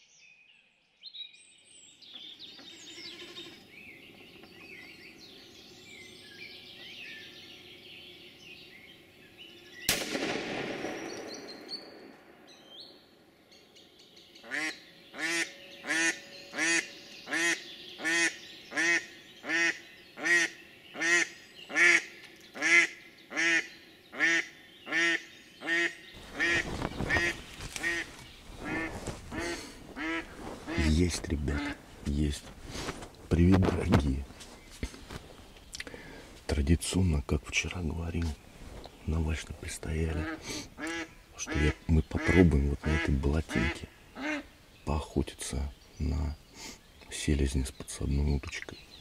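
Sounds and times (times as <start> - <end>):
songbirds chirping: 0.0 - 49.0
shotgun shot: 9.9 - 12.4
bumps and rustling: 26.2 - 35.7
duck call quacking: 28.6 - 31.0, 40.2 - 44.4.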